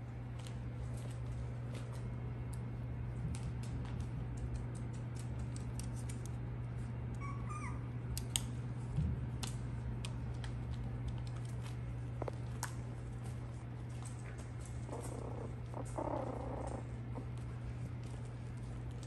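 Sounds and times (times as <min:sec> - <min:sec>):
puppy claws clicking and scratching: 0:00.4 - 0:19.0
puppy squeak: 0:07.2 - 0:07.9.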